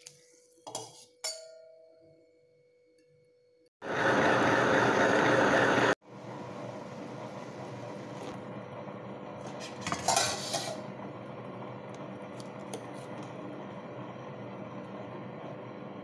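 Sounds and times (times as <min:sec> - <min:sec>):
pot lid clattering: 0:09.6 - 0:10.8.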